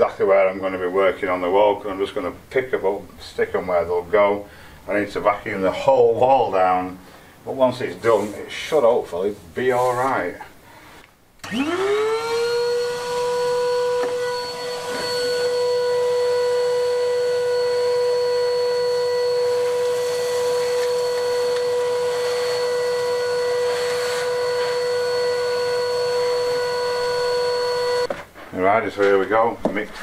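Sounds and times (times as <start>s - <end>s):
shop vacuum motor whine: 11.4s - 28.1s.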